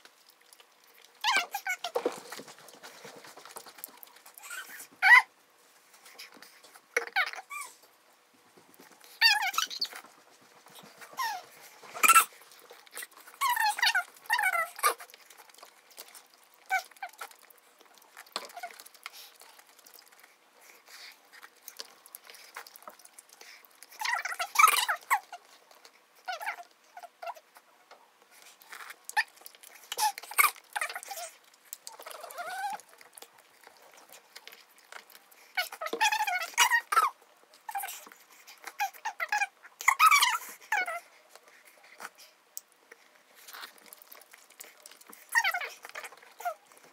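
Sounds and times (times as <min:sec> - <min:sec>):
chewing: 0:00.0 - 0:46.9.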